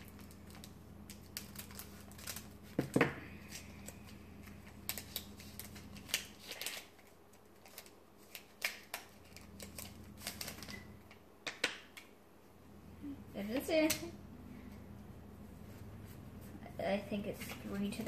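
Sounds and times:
scissors snipping foil wrapper: 0:00.0 - 0:02.5, 0:04.7 - 0:10.9
crinkly wrapper crackling: 0:00.0 - 0:02.8, 0:03.4 - 0:11.2
cards rustling: 0:00.0 - 0:11.2.

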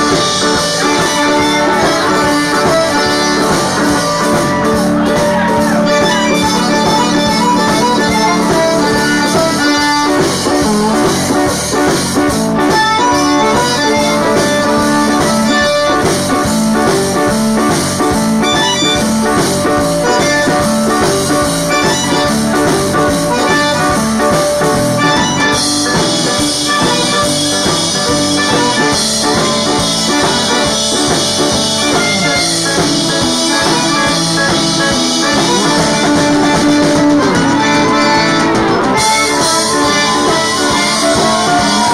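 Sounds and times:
button accordion: 0:05.9 - 0:11.6, 0:12.6 - 0:16.2, 0:18.4 - 0:41.9.

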